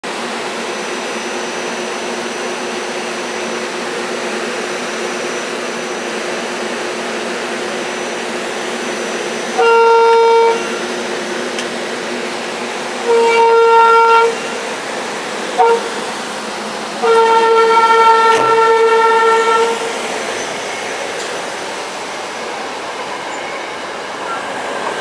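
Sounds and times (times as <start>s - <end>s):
railcar hum and blower noise: 0.0s - 25.0s
train horn blast: 9.5s - 10.9s, 13.0s - 14.6s, 15.5s - 16.2s, 17.0s - 20.1s.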